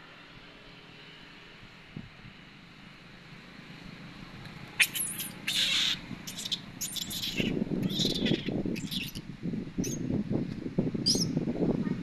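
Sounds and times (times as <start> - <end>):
high-pitched animal squawks: 4.8 - 9.2.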